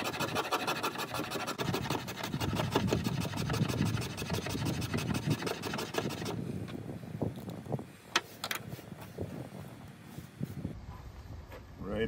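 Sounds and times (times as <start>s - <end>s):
knife scraping wooden stick: 0.0s - 6.4s.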